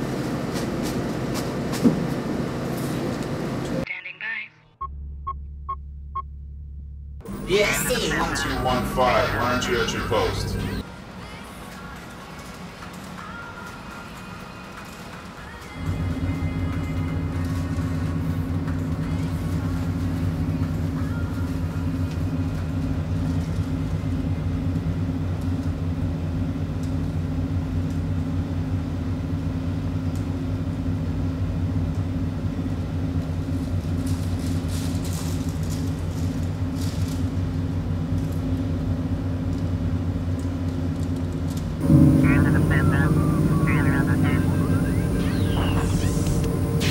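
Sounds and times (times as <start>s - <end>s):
loud low rumbling drone: 4.8s - 10.8s, 15.8s - 46.9s.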